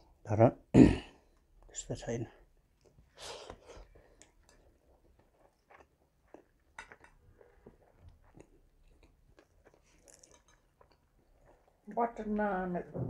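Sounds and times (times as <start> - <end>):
faint chewing: 2.5 - 12.3
soft wet clicks and smacks: 2.8 - 12.0.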